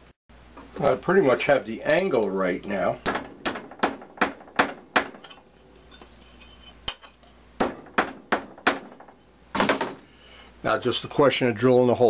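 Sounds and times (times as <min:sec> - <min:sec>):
hammer striking metal tubing: 0:02.1 - 0:09.3.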